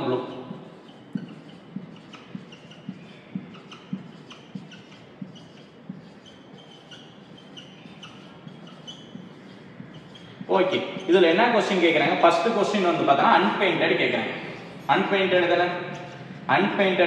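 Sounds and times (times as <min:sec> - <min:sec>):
marker scratching on whiteboard: 0:00.0 - 0:17.0
marker tapping on whiteboard: 0:00.5 - 0:11.2.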